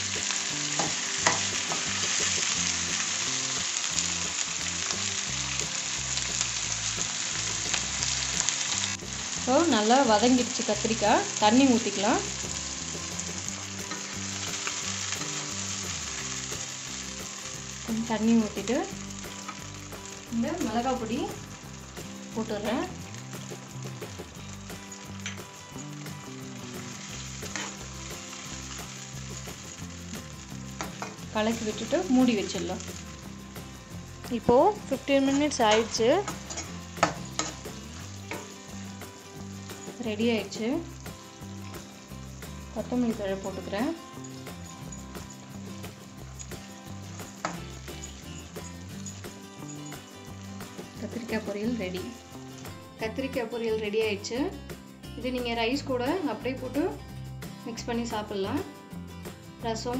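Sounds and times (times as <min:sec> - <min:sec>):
vegetables sizzling in oil: 0:00.0 - 0:59.9
steel spoon stirring: 0:24.2 - 0:33.1, 0:34.9 - 0:41.0, 0:42.7 - 0:51.3.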